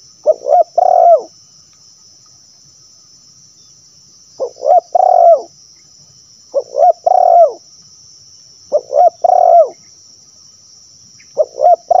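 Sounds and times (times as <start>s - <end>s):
dove cooing: 0.0s - 1.3s, 4.4s - 5.5s, 6.5s - 7.6s, 8.7s - 9.8s, 11.4s - 12.0s.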